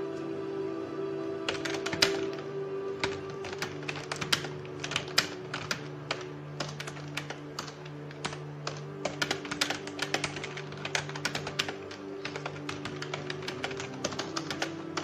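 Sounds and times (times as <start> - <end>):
organ music with held notes: 0.0 - 15.0
keyboard typing clicks: 1.5 - 15.0.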